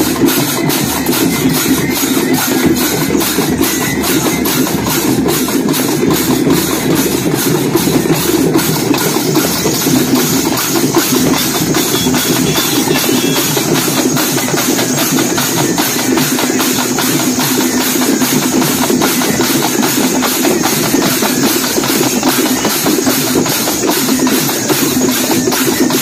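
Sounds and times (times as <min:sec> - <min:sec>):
drum band playing: 0:00.0 - 0:26.0.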